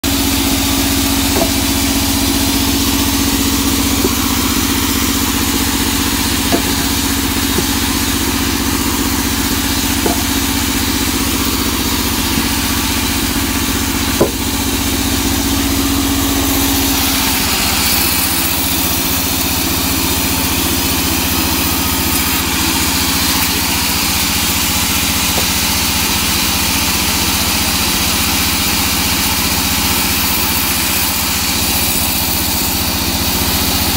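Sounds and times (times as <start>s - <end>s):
band saw machine hum: 0.0s - 33.9s
logs knocking: 1.0s - 14.8s, 25.2s - 25.9s.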